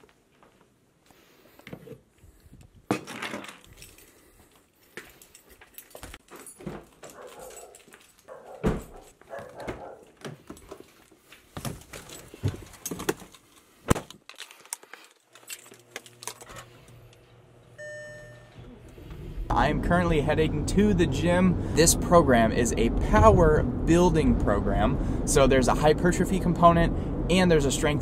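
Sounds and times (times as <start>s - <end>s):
footsteps: 3.7s - 13.3s
car engine hum: 18.7s - 28.0s.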